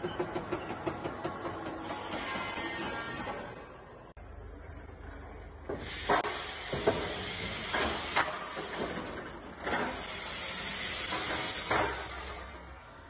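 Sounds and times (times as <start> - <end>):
clunks and knocks of pallets: 0.0 - 3.5, 4.6 - 10.2, 11.0 - 12.3
machine hissing: 5.7 - 9.0, 9.7 - 12.6.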